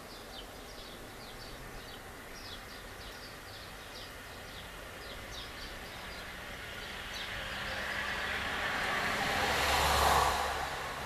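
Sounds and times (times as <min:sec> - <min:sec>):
small birds chirping: 0:00.0 - 0:08.7
vehicle passing: 0:04.6 - 0:11.0.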